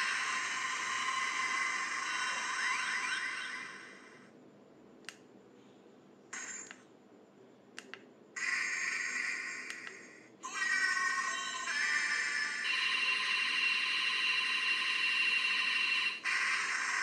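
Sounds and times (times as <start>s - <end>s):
toy electronic sound effects: 0.0s - 4.2s, 8.4s - 17.0s.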